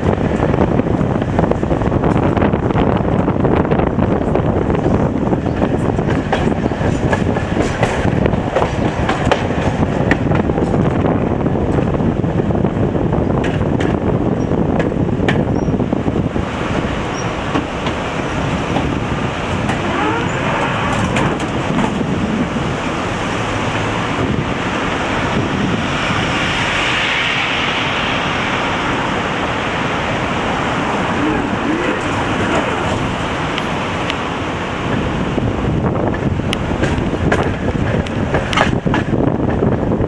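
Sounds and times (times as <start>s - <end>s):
road traffic noise: 13.8s - 39.4s.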